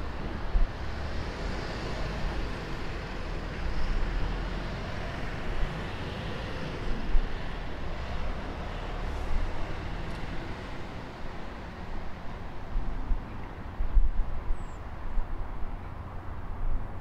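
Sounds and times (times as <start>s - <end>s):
distant road traffic rumble: 0.0s - 17.0s
wind on microphone: 12.1s - 17.0s.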